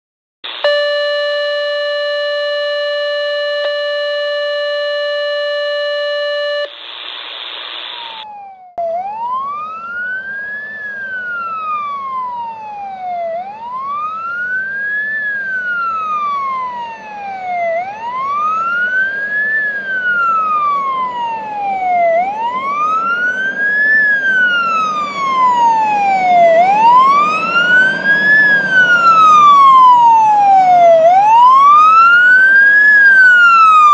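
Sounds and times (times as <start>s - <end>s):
steady held tone: 0.4s - 33.9s
fire engine siren wailing: 0.5s - 6.7s, 7.9s - 33.9s
second higher siren wail: 0.5s - 6.7s, 7.9s - 33.9s
truck engine rumbling: 9.2s - 33.9s.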